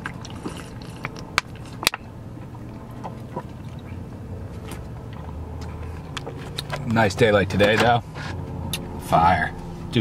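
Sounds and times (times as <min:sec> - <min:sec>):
person drinking from plastic bottle: 0:00.0 - 0:02.0
low steady hum: 0:00.0 - 0:10.0.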